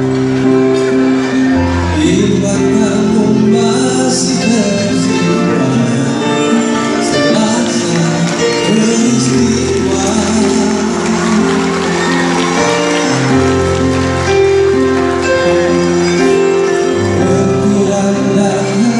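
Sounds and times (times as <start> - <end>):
electronic keyboard chords: 0.0 - 18.9
man singing into microphone: 1.8 - 13.8, 15.4 - 18.9.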